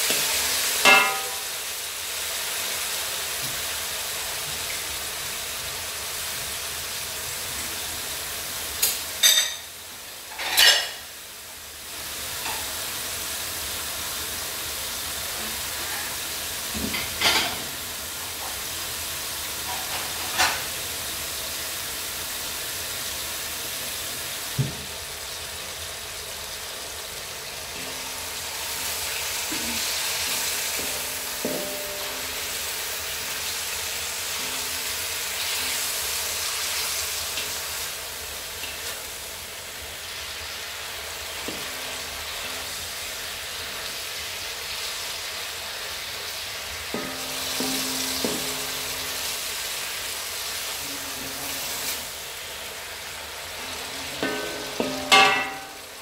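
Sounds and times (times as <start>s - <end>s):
beef sizzling in a wok: 0.0s - 56.0s
spatula knocking against wok: 0.9s - 1.4s, 30.7s - 32.4s, 47.0s - 49.4s, 54.1s - 55.9s
spatula scraping a wok: 46.8s - 52.2s.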